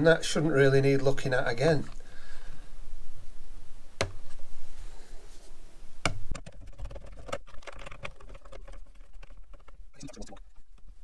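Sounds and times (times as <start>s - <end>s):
small plastic and metal ticks: 6.3s - 10.9s.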